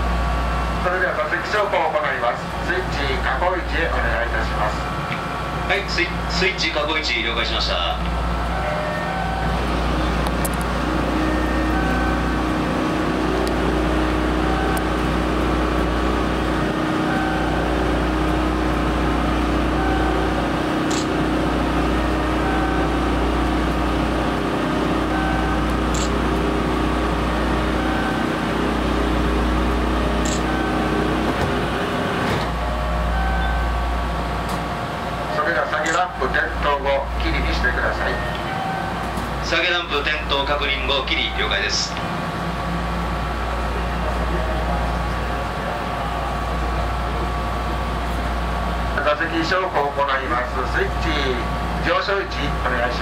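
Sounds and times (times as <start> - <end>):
train car background drone: 0.0 - 53.0
short beeps: 25.1 - 26.2, 30.2 - 31.0
seat lift mechanism humming: 25.1 - 34.7.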